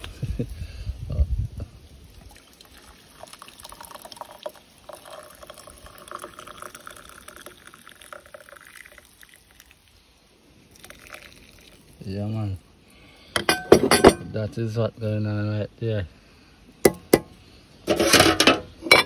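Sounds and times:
tea pouring into cup: 0:02.1 - 0:10.0, 0:10.6 - 0:12.7.

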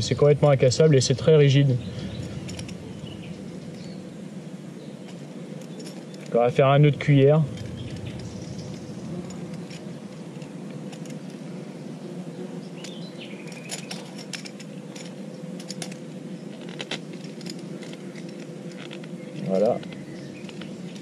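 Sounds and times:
steady background hiss: 0:00.0 - 0:21.0
fishing tackle clicking and rattling: 0:02.1 - 0:02.9, 0:12.8 - 0:16.0.

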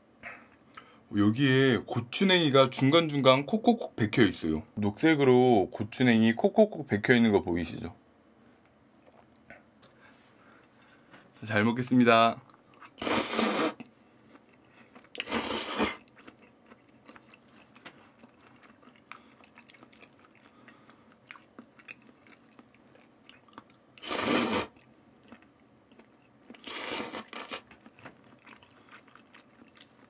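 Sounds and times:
loud slurps: 0:13.0 - 0:13.8, 0:15.2 - 0:16.0, 0:24.0 - 0:24.8
quiet chewing: 0:13.8 - 0:24.1, 0:24.7 - 0:30.0.

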